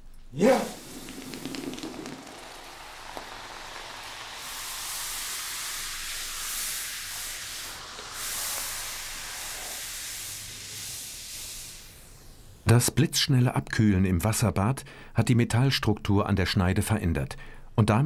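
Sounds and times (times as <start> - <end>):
hot blade hissing in water: 0.4 - 12.6.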